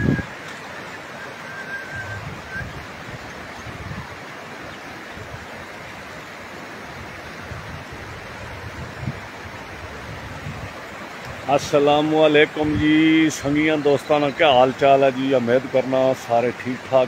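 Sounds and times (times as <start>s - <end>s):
wind buffeting microphone: 0.0s - 0.4s, 1.9s - 4.2s, 7.0s - 11.8s, 12.5s - 13.7s
river water rushing: 0.0s - 17.0s.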